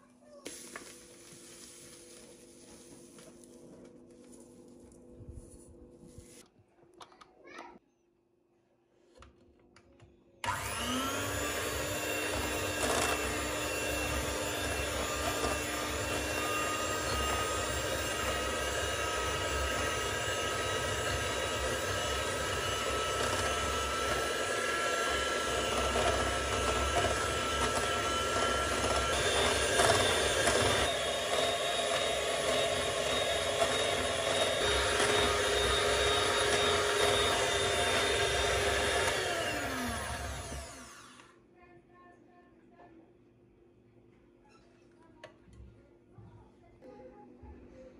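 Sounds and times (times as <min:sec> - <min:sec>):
vacuum cleaner whining: 0:10.4 - 0:41.4.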